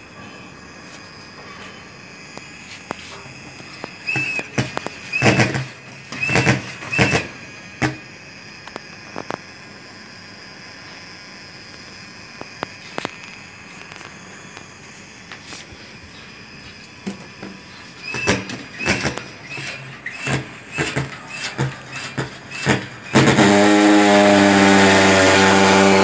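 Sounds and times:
squeaking hand pump strokes: 0:00.0 - 0:07.8, 0:12.4 - 0:23.6
high-pitched whine: 0:00.0 - 0:26.0
clicks: 0:02.3 - 0:08.0.

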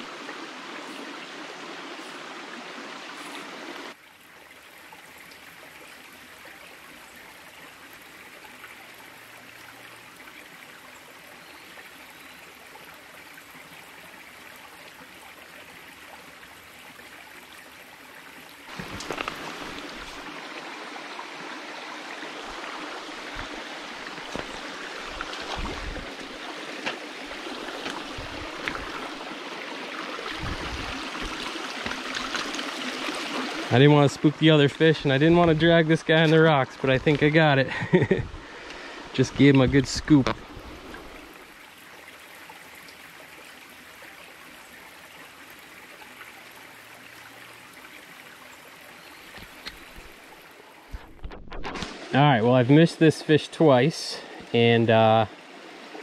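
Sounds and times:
stream trickling over stones: 0:00.0 - 0:56.0
low thumps and knocks: 0:24.2 - 0:27.0, 0:30.3 - 0:32.0.

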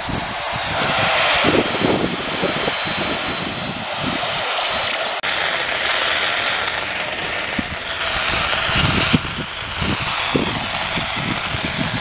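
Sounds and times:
radio static hiss and crackle: 0:04.4 - 0:12.0.

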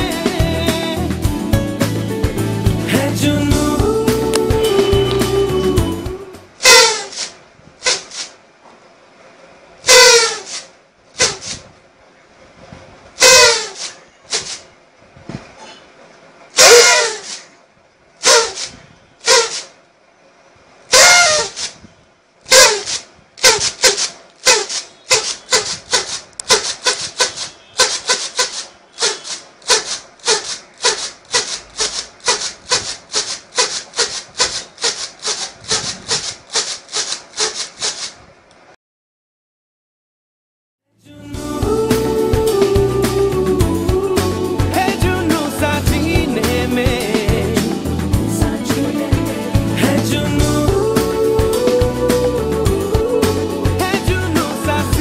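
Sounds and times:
toy whistle falling notes: 0:06.6 - 0:07.3, 0:09.9 - 0:10.6, 0:13.2 - 0:13.9, 0:16.6 - 0:17.4, 0:18.2 - 0:19.7, 0:20.9 - 0:21.7, 0:22.5 - 0:35.4
toy whistle short toots: 0:06.6 - 0:08.3, 0:09.9 - 0:11.6, 0:13.2 - 0:14.6, 0:16.6 - 0:17.5, 0:18.2 - 0:19.8, 0:20.9 - 0:21.8, 0:22.5 - 0:38.1.

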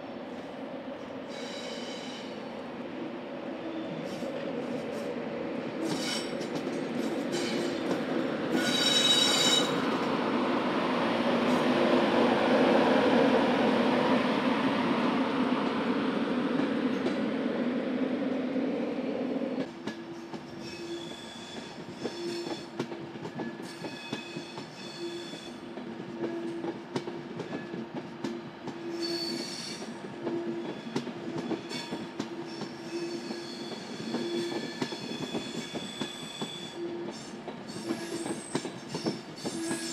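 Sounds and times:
train rolling rumble and hum: 0:00.0 - 0:39.9
wheels squealing against rails: 0:01.3 - 0:02.4, 0:05.8 - 0:10.0, 0:19.8 - 0:25.6, 0:28.8 - 0:39.9.

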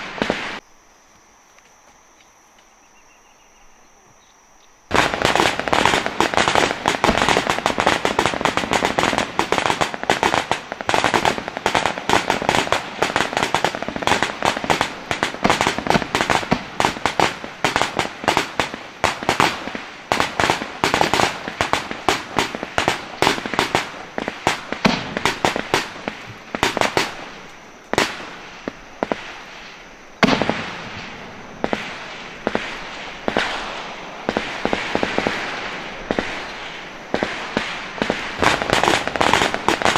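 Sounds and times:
sharp cracks and bangs: 0:00.0 - 0:00.6, 0:04.9 - 0:29.5, 0:30.2 - 0:39.9.

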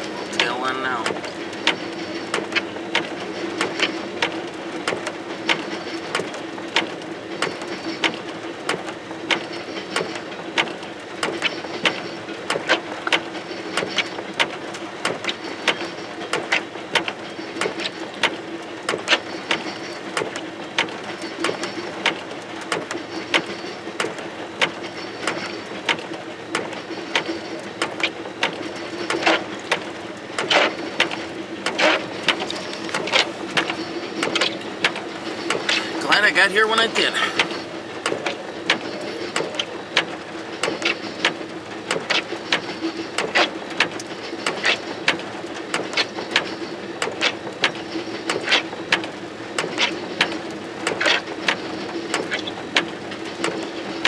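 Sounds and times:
steady train hum: 0:00.0 - 0:06.7, 0:23.0 - 0:41.8.

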